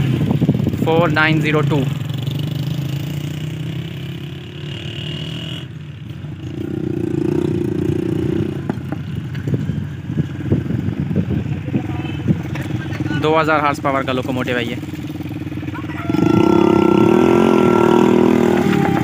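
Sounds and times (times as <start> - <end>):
sharp ticks and knocks: 8.6 - 9.5
locomotive engine drone: 14.7 - 19.0.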